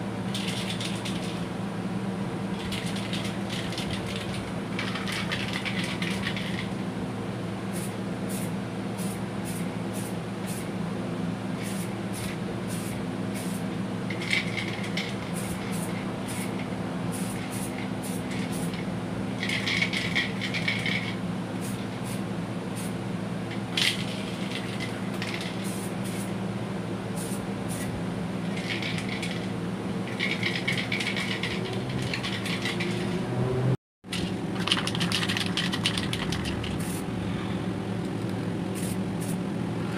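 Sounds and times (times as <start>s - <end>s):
steady machine hum: 0.0s - 39.9s.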